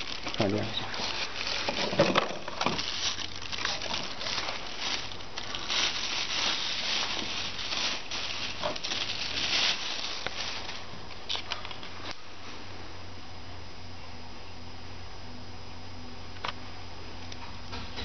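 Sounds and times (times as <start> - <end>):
plastic bag crinkling: 0.0 - 12.2.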